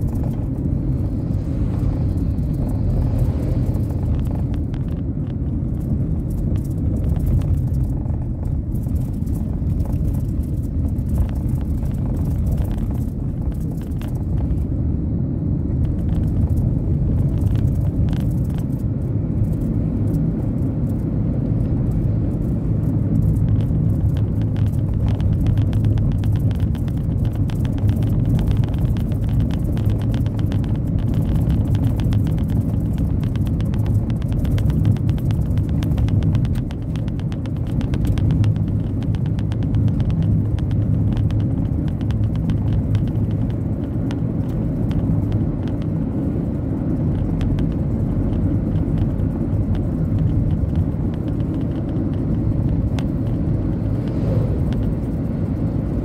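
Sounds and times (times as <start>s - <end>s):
car engine and tyres rumbling: 0.0s - 56.0s
faint fast ticking: 21.9s - 56.0s.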